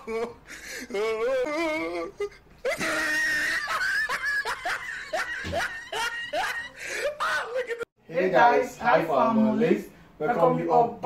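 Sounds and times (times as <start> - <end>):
person whimpering wail: 0.0 - 4.0.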